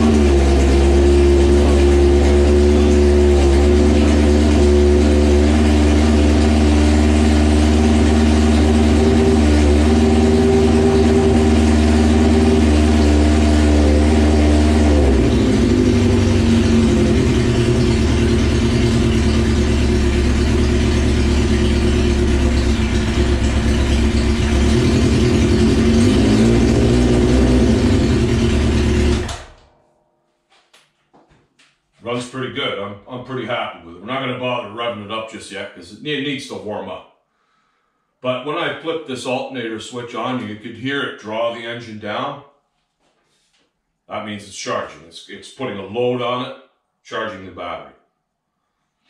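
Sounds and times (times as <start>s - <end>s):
motorcycle engine running: 0.0s - 29.8s.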